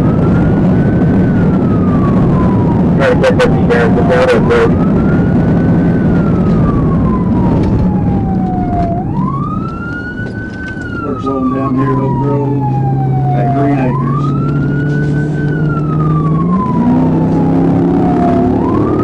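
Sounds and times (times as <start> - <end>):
car engine and road rumble: 0.0 - 19.0
police siren wailing: 0.0 - 19.0.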